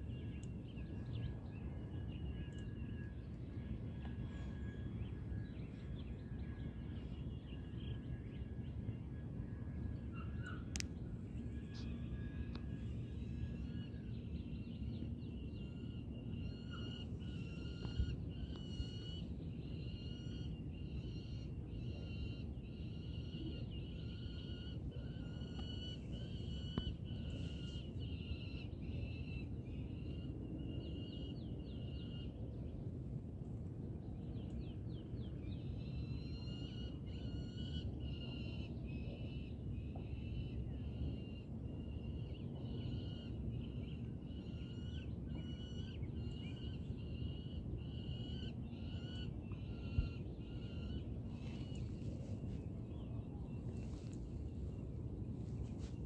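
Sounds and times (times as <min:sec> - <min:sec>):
eagle calling: 0:16.4 - 0:28.7.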